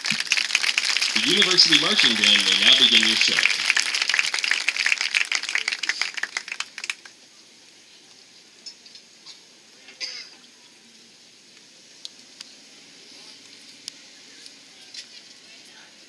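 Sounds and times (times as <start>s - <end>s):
audience applause: 0.0s - 7.2s
faint scattered sounds: 0.0s - 16.0s.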